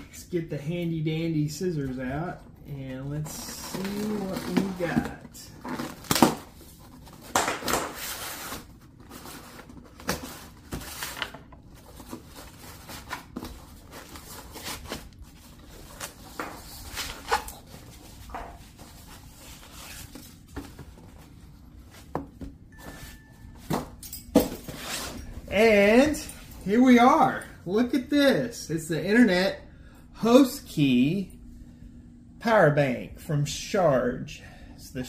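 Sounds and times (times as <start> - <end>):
cardboard box being unpacked: 3.2 - 21.2.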